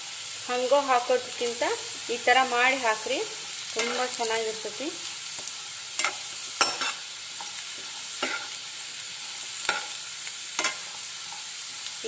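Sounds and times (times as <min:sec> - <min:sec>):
potatoes sizzling in oil: 0:00.0 - 0:12.0
spoon scraping and knocking pan: 0:03.8 - 0:04.2, 0:05.4 - 0:12.0.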